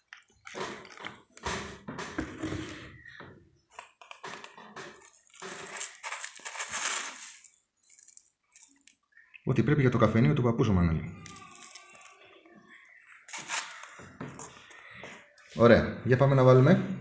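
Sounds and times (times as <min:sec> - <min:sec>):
plastic spoon scraping cup: 0:03.8 - 0:07.6.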